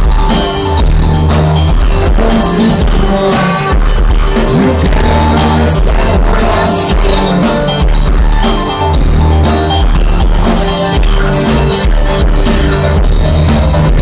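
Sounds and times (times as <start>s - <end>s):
live folk band with heavy bass: 0.0s - 14.0s
person singing: 2.0s - 8.1s.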